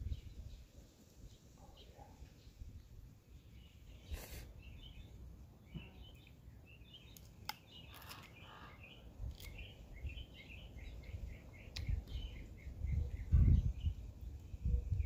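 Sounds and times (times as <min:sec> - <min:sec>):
small birds chirping: 0:00.0 - 0:15.0
crab shell cracking: 0:07.1 - 0:08.5, 0:09.2 - 0:09.6.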